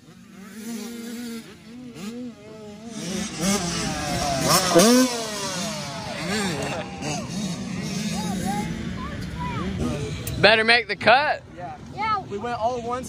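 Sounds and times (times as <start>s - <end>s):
dirt bike engine revving: 0.0s - 11.1s.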